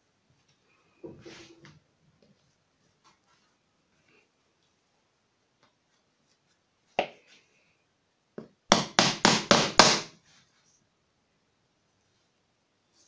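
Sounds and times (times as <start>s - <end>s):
hammer striking nail into wood: 8.7s - 10.2s.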